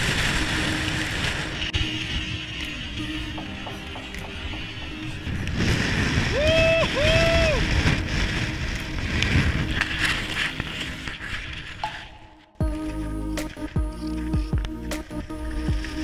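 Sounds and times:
wind buffeting microphone: 0.0s - 10.6s.

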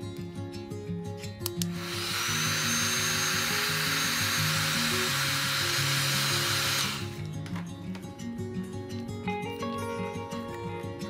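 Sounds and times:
heat gun switch clicks: 1.4s - 2.0s
heat gun fan blowing: 1.5s - 7.3s.

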